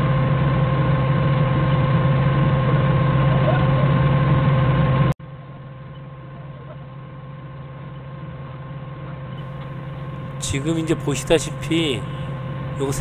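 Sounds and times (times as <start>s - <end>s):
forklift engine idling: 6.5s - 13.0s.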